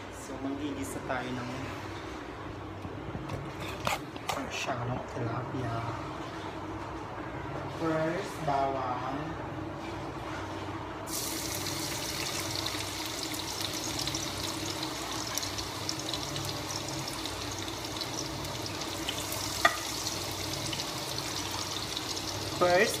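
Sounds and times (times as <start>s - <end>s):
garlic sizzling in hot oil: 11.1s - 23.0s.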